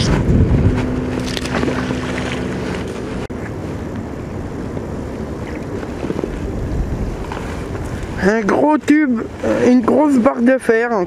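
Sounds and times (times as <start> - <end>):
steady hum: 0.0 - 11.0
wind rumbling on microphone: 0.0 - 11.0.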